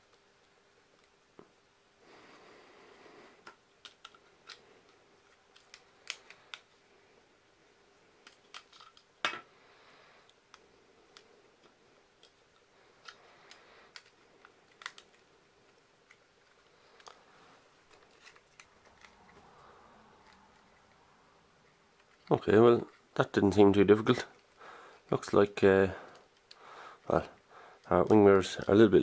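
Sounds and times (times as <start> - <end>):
plastic parts clicking together: 3.4 - 6.8, 8.2 - 9.4, 10.3 - 17.2, 17.9 - 19.4.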